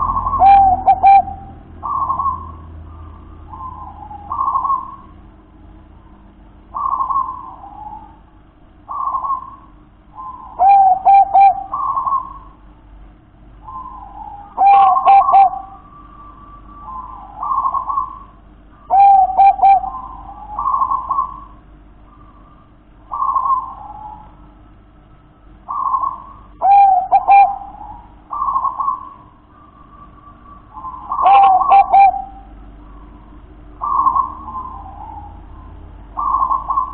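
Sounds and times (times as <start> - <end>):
rolling dove phrases: 0.0 - 2.4, 6.2 - 12.6, 13.6 - 24.6, 25.5 - 36.9
dove cooing: 0.0 - 5.3, 6.2 - 12.7, 13.6 - 24.6, 25.5 - 36.9.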